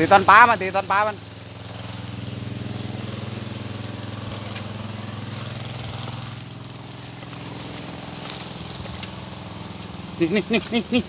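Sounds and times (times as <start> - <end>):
grass and twigs crackling underfoot: 0.0 - 11.0
small engine running steadily: 0.0 - 11.0.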